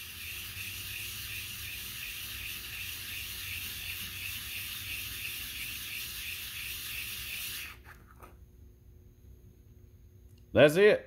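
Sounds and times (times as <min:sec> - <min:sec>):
knife scraping on sandpaper: 0:00.0 - 0:08.1.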